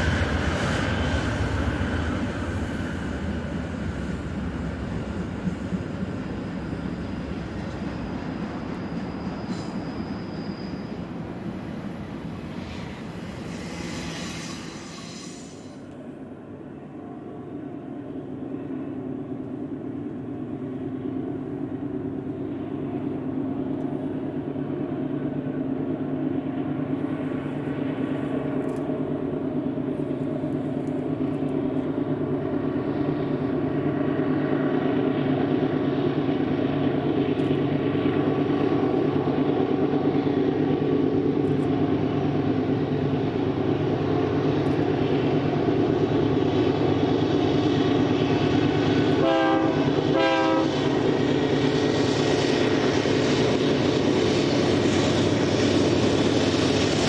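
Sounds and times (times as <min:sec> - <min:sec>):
diesel locomotive engines droning: 0:00.0 - 0:57.0.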